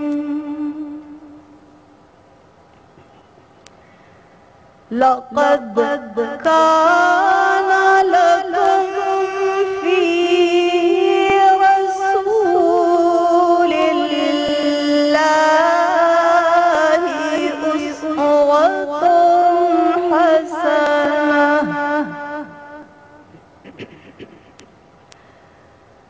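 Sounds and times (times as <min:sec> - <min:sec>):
person chanting recitation: 0:00.0 - 0:01.4, 0:04.9 - 0:24.3.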